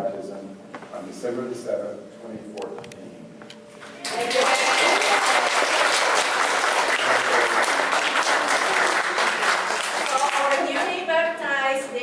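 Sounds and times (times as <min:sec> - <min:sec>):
crowd applauding: 0:03.9 - 0:11.0.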